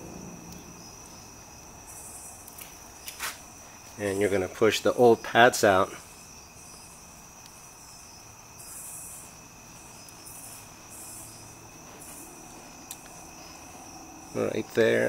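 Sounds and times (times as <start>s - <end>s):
soft hiss: 0.0s - 15.0s
high-pitched background drone: 10.9s - 15.0s.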